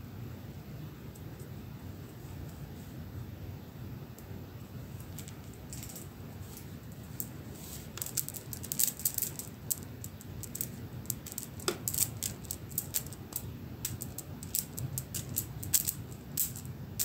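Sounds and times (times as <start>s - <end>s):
beads rattling and clicking: 5.0s - 17.0s.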